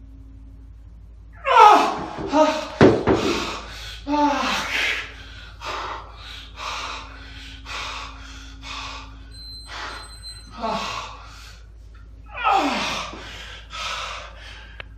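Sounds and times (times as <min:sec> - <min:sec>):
man groaning with strain: 0:01.4 - 0:05.1, 0:10.5 - 0:11.3, 0:12.3 - 0:13.2
man breathing hard: 0:02.3 - 0:14.9.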